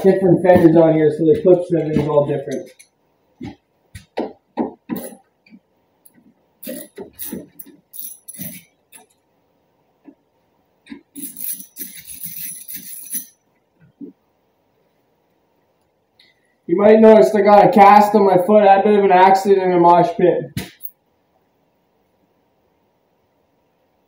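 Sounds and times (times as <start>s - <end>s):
metallic jingling rattle: 6.6s - 9.2s, 11.1s - 13.4s.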